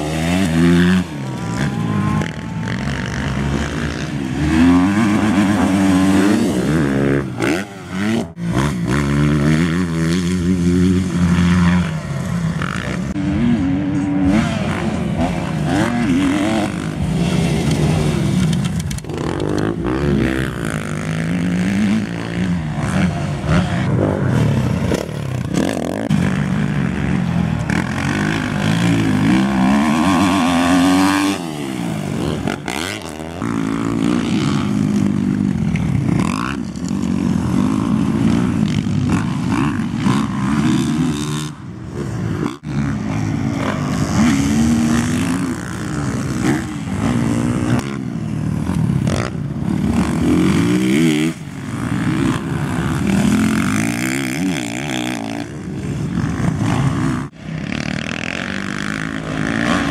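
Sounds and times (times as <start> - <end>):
dirt bike engines revving: 0.0 - 59.9.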